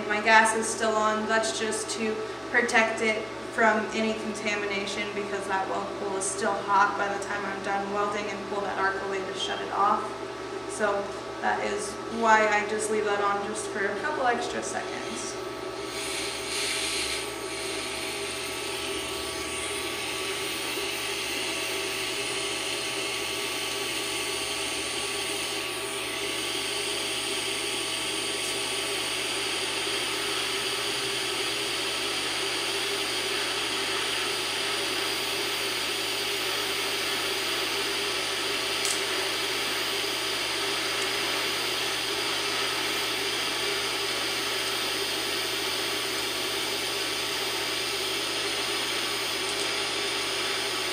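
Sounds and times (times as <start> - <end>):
welding arc hissing: 15.8 - 50.9.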